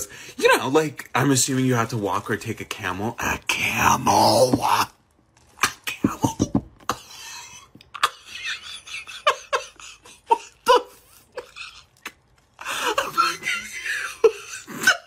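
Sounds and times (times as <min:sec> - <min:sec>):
person laughing: 0:06.0 - 0:15.0.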